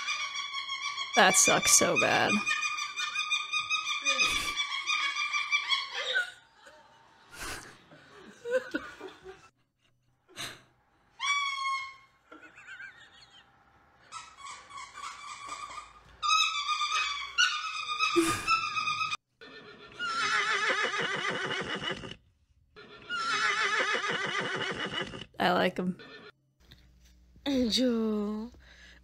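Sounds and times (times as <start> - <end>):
cockatoo shrill cries: 0.0 - 6.4, 11.2 - 12.2, 23.0 - 24.2
horse whinnying: 16.4 - 22.2, 22.8 - 25.4.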